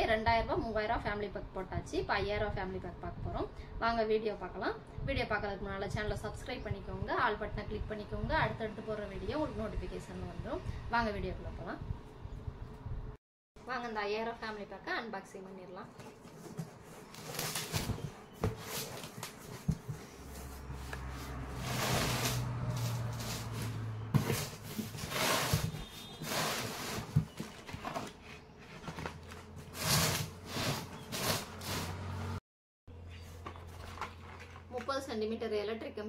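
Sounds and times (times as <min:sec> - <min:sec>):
cardboard boxes rustling and scraping: 0:15.9 - 0:32.3
cardboard flaps opening: 0:16.0 - 0:20.6.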